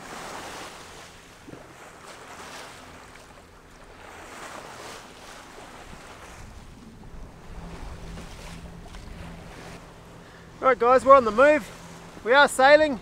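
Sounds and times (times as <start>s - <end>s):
water rushing along hull: 0.0s - 13.0s
wind on microphone: 5.6s - 9.9s
diesel engine humming: 6.5s - 13.0s.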